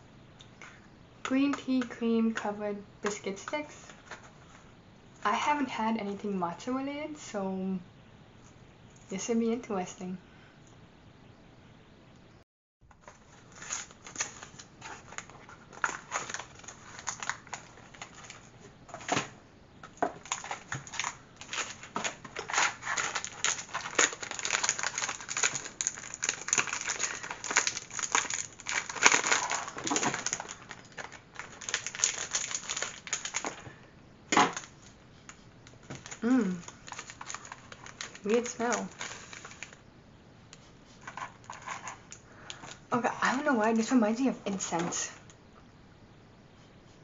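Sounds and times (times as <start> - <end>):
plastic wrapper crinkling: 13.0 - 19.2, 20.0 - 33.6, 34.4 - 39.8.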